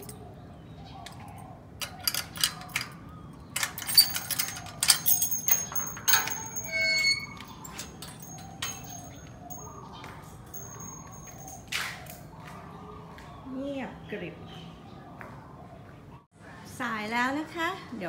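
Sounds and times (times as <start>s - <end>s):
metal gate clanking and rattling: 1.1s - 9.8s, 10.4s - 12.0s
hinge squeak: 1.8s - 9.7s.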